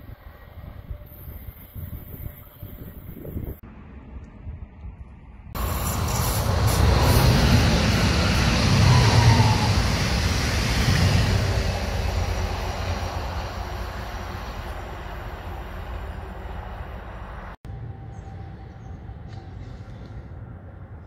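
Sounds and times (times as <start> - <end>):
electric train passing: 5.6 - 21.0.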